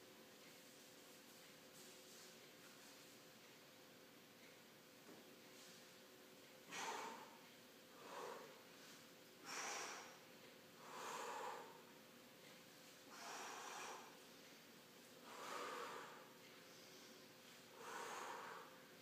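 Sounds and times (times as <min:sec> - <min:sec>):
man breathing hard: 0:06.6 - 0:10.2, 0:10.8 - 0:11.9, 0:13.1 - 0:14.3, 0:15.2 - 0:19.0.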